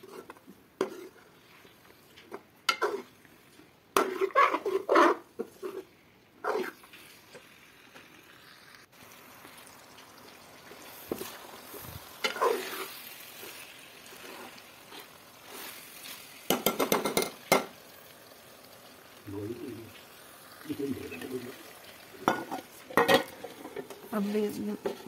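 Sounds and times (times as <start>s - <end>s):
spoon scraping metal pot: 0.0s - 1.5s, 2.2s - 3.2s, 4.0s - 7.0s, 12.2s - 13.5s
food sizzling in oil: 0.0s - 25.0s.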